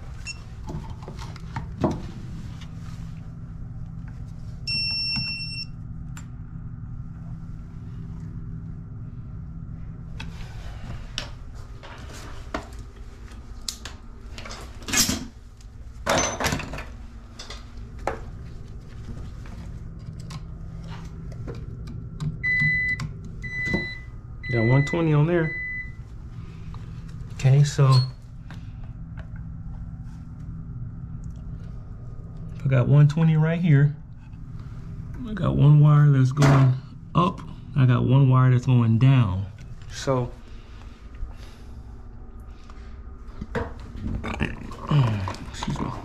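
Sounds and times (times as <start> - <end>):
low steady hum: 0.0 - 46.0
electronic beep: 4.7 - 5.7.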